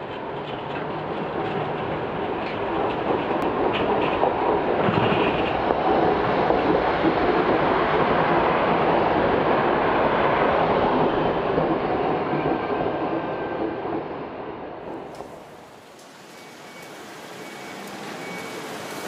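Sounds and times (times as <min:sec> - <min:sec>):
streetcar wheels rumbling on rails: 0:00.0 - 0:19.0
car passing: 0:15.0 - 0:19.0.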